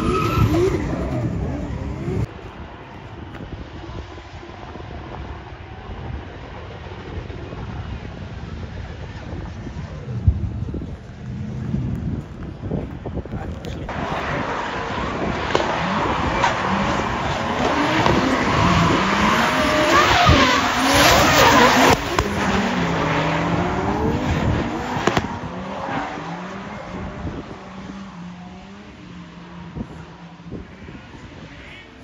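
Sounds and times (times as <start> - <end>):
tyres squealing and skidding: 0.0 - 2.3, 13.9 - 29.6
car engines revving: 0.0 - 32.0.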